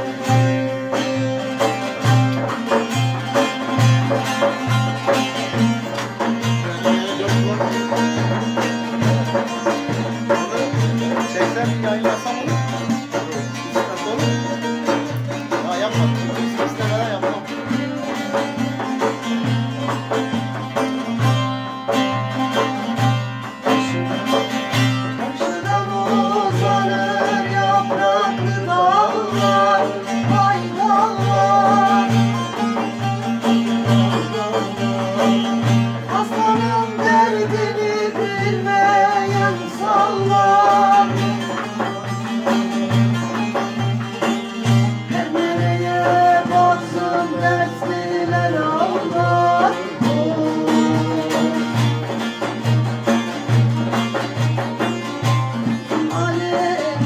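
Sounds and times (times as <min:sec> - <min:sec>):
frame drum beat: 0:00.0 - 0:57.0
long-necked lutes playing: 0:00.0 - 0:57.0
person singing: 0:23.6 - 0:43.4, 0:44.2 - 0:52.2, 0:55.6 - 0:57.0.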